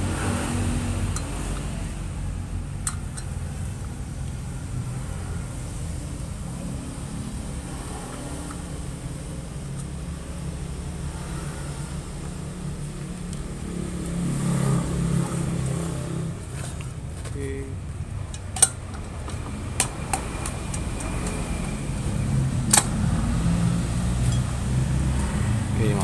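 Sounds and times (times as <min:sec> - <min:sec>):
steady low hum: 0:00.0 - 0:26.0
sharp metal clicks: 0:02.8 - 0:03.5, 0:18.1 - 0:21.8, 0:22.6 - 0:23.2.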